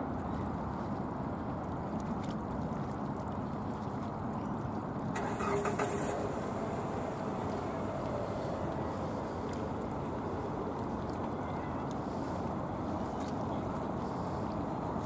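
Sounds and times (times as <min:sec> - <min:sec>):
brief hiss: 0:05.2 - 0:11.0
jet engines rumbling: 0:05.2 - 0:14.7.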